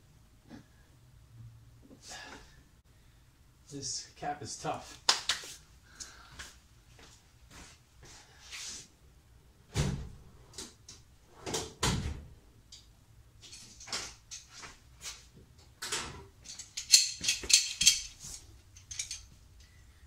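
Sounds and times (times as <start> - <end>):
hand tools clinking: 16.4 - 19.7.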